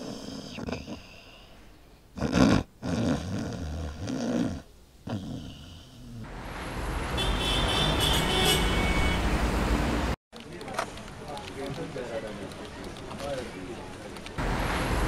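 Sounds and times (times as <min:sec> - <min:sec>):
road traffic: 0:05.9 - 0:15.0.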